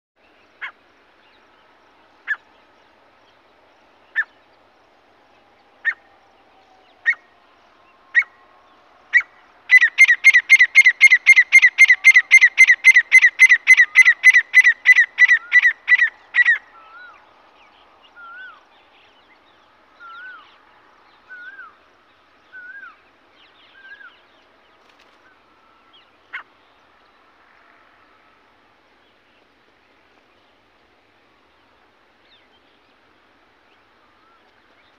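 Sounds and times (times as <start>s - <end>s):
francolin calling: 6.8s - 19.4s, 22.4s - 24.3s.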